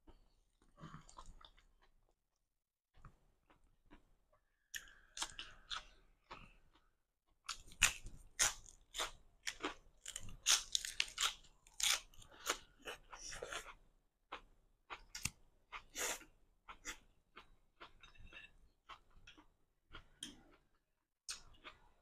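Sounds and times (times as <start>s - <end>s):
crisp lettuce crunching: 7.5s - 12.6s.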